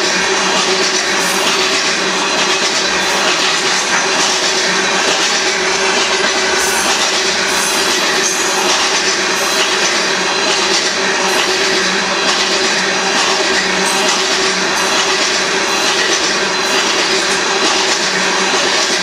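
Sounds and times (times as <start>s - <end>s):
freight train rumbling by: 0.0s - 19.0s
steel wheels rattling on rails: 0.0s - 19.0s.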